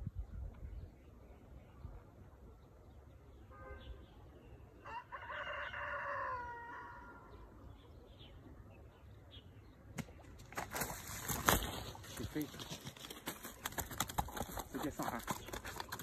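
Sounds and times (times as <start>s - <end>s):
rooster crowing: 4.8s - 7.3s.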